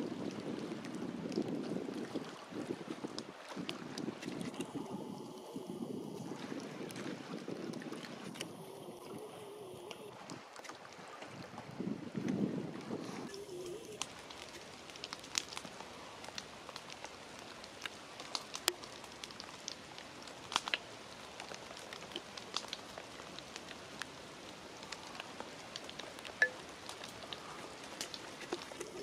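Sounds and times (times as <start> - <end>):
faint steady hiss: 4.5 - 11.9, 13.0 - 29.0
raindrops ticking: 13.3 - 29.0.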